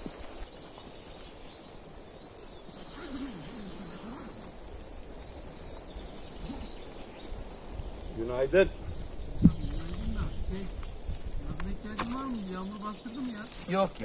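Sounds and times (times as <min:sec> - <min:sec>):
faint bird chirps: 0:00.0 - 0:08.2
steady low hiss: 0:00.0 - 0:14.0.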